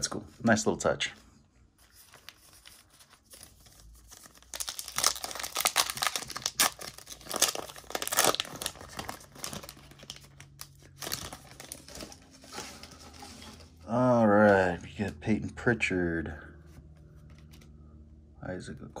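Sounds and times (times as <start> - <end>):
foil wrapper crinkling and tearing: 2.1 - 13.0.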